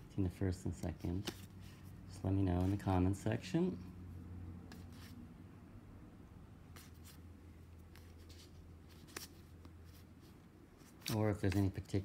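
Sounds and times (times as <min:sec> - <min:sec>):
cards clicking and rustling: 0:01.1 - 0:01.8, 0:07.8 - 0:10.0, 0:10.8 - 0:12.0.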